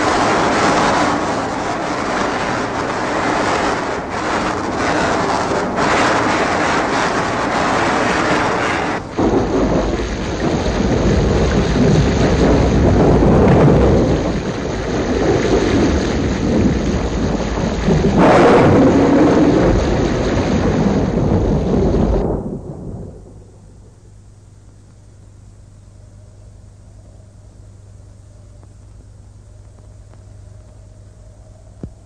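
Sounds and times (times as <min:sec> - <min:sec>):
thunder rumbling: 0:00.0 - 0:24.8
rain hiss: 0:00.0 - 0:32.0.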